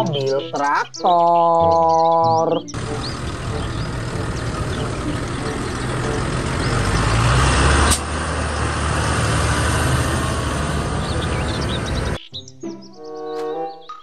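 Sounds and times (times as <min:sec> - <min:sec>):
tractor diesel engine running: 0:01.6 - 0:12.2.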